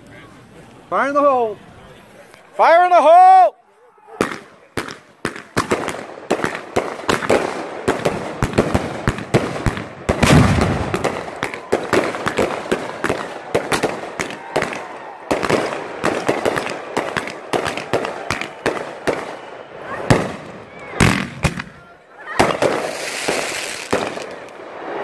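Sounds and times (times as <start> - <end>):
fireworks popping and banging: 4.2 - 21.8, 22.4 - 24.8.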